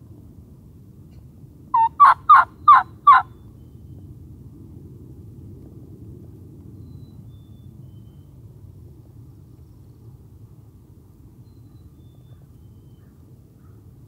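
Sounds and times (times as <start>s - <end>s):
turkey calling: 1.8s - 3.3s.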